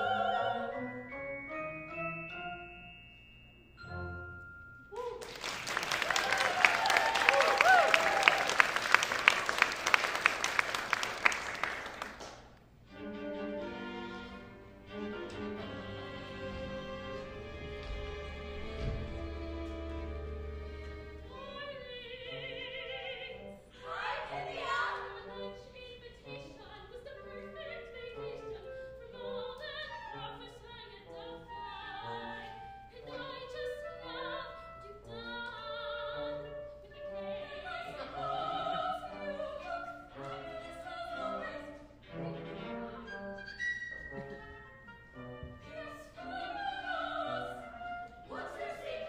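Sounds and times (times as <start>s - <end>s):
woman singing opera: 0.0s - 0.9s, 21.2s - 43.5s, 45.4s - 49.0s
orchestra playing: 0.0s - 4.9s, 12.7s - 26.4s, 35.1s - 49.0s.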